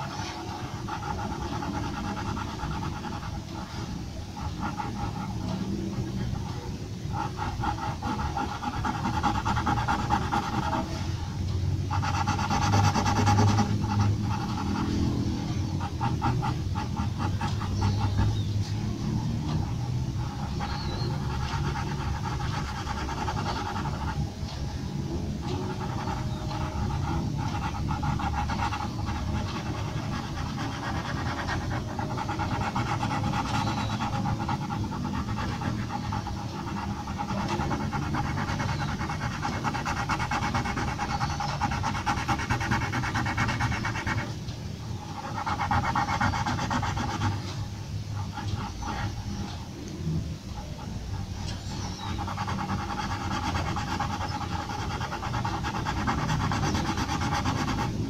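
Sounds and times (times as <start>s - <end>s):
pencil scratching on paper: 0.0s - 49.7s, 50.5s - 58.0s.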